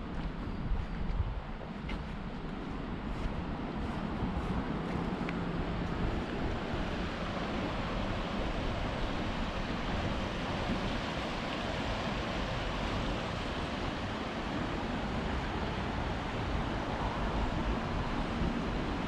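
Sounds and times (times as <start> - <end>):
wind rumble on microphone: 0.0 - 19.0
river rushing: 3.8 - 19.0.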